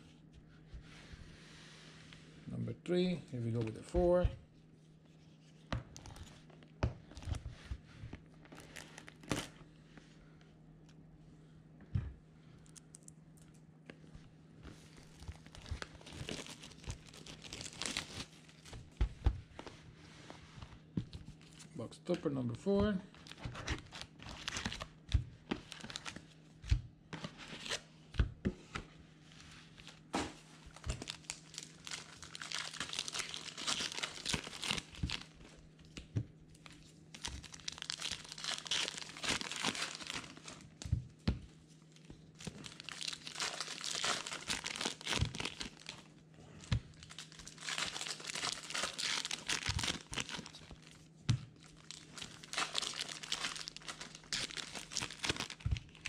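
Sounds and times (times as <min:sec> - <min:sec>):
plastic wrapping tearing and crinkling: 0:08.4 - 0:09.6, 0:14.8 - 0:18.8, 0:23.2 - 0:25.0, 0:25.6 - 0:26.3, 0:30.7 - 0:35.4, 0:36.6 - 0:40.8, 0:42.0 - 0:46.1, 0:46.9 - 0:51.0, 0:51.6 - 0:56.0.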